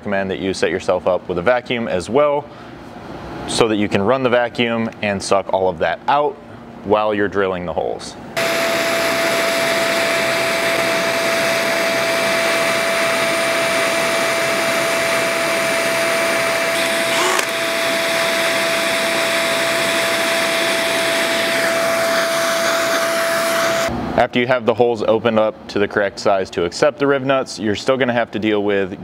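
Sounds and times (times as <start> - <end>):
cordless drill boring metal: 8.4 - 23.9
shop vacuum whining: 8.4 - 24.0.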